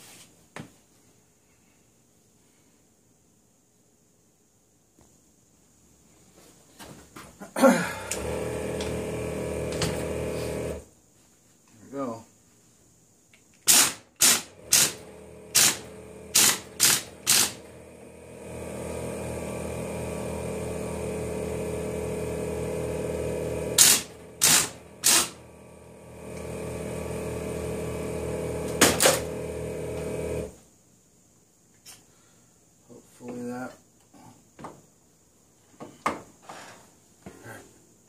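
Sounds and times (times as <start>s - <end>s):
steady machine hum: 8.0s - 10.8s, 14.3s - 30.6s
air impact wrench hammering: 8.1s - 10.8s, 13.6s - 19.8s, 20.4s - 30.5s.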